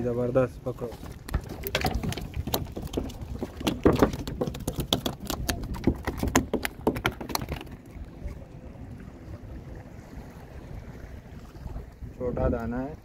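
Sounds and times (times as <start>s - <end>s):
sharp knocks and taps: 1.3s - 7.8s.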